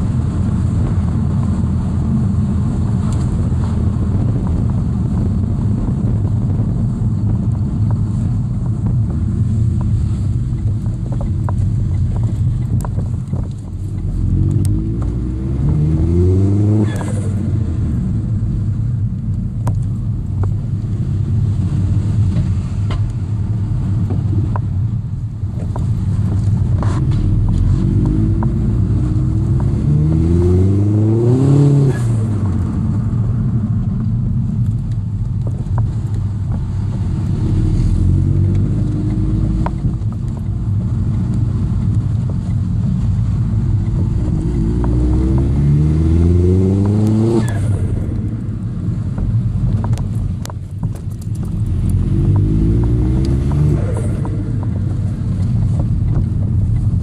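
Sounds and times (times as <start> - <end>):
car engine accelerating: 0.0 - 57.0
road rumble: 0.0 - 57.0.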